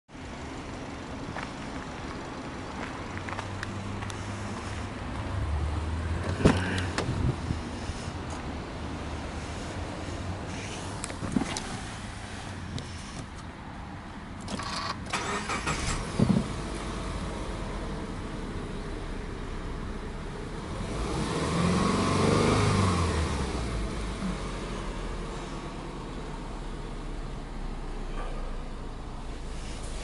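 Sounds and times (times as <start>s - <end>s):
car engine idling and revving: 0.1s - 30.0s
starter cranking engine: 14.4s - 16.1s.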